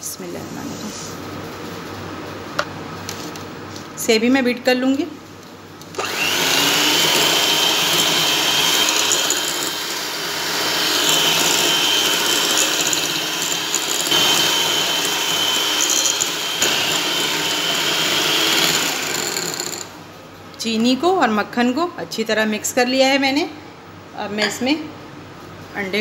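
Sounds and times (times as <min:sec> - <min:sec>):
electric hand mixer whine: 0:06.0 - 0:19.9.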